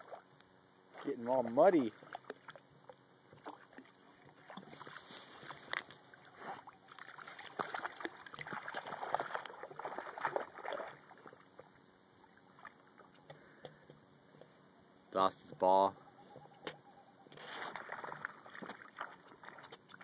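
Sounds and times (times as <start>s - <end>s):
dog splashing through water: 6.6s - 11.6s, 17.4s - 20.0s.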